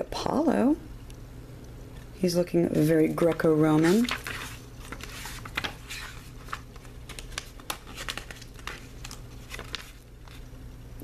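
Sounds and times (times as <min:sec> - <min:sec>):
pages being leafed through: 0:02.7 - 0:10.6.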